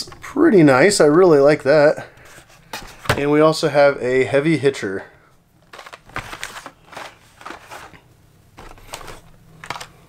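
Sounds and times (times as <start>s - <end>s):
plastic and card rustling: 2.2s - 3.3s, 5.6s - 10.0s.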